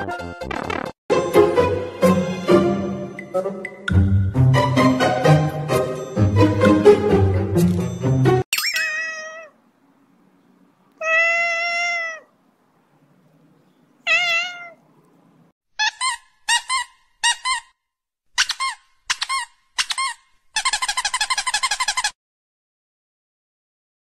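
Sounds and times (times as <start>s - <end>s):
cat meowing: 8.7s - 9.6s, 10.9s - 12.4s, 14.0s - 14.9s.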